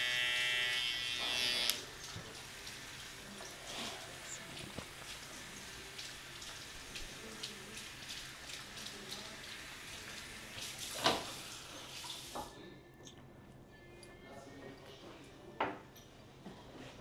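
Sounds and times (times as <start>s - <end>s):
water running from a tap: 1.7s - 12.5s.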